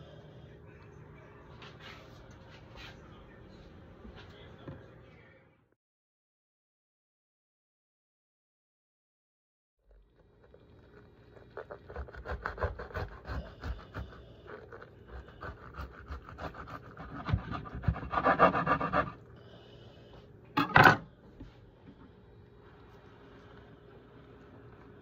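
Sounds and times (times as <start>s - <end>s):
knife sawing crusty bread: 11.3s - 19.2s.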